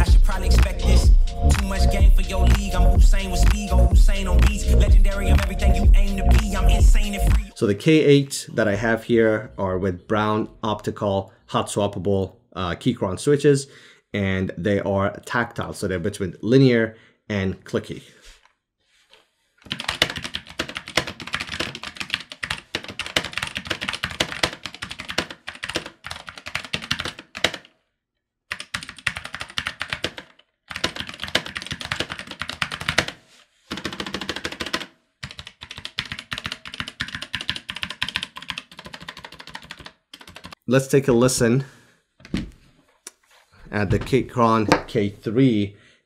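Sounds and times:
mechanical keyboard typing: 19.7 - 27.7, 28.5 - 40.6.

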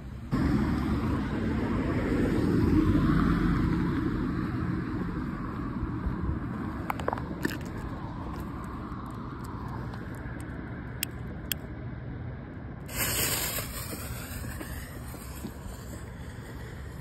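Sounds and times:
street traffic rumble: 0.0 - 17.0
fuse hissing: 12.9 - 17.0.

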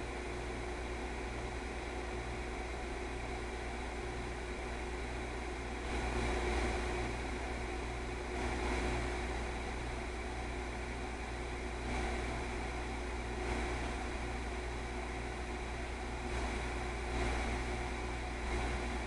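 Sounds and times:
background hum and hiss: 0.0 - 19.0.

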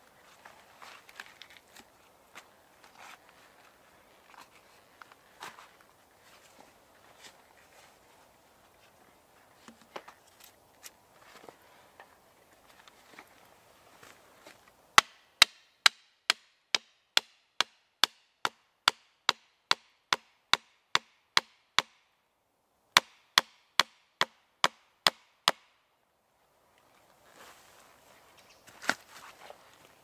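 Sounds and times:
hatchet knocking wooden stake: 15.0 - 22.0, 23.0 - 25.7.

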